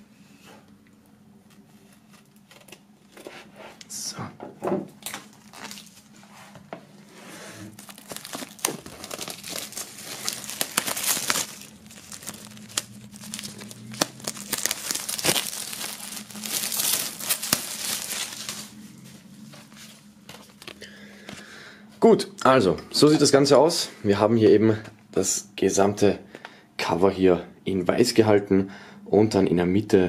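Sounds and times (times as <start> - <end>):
plastic shrink-wrap crinkling: 5.0 - 6.2, 7.7 - 20.9.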